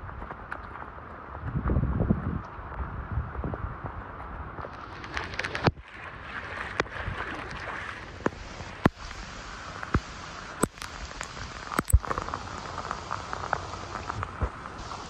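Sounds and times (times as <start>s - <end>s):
heavy rain hissing: 7.7s - 15.0s.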